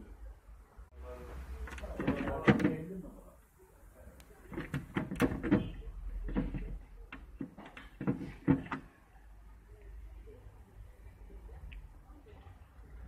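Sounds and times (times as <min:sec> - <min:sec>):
plastic shelves knocking and clicking: 0:01.7 - 0:03.0, 0:04.4 - 0:09.0.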